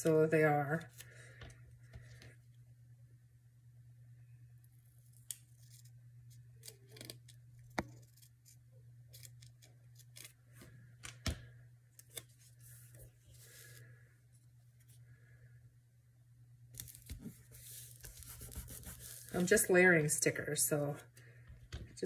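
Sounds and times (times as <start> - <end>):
paper rustling: 16.8 - 19.6.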